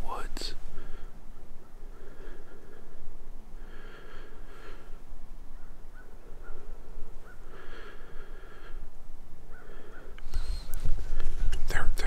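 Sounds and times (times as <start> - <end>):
person breathing close to microphone: 1.8 - 5.1, 7.4 - 11.6.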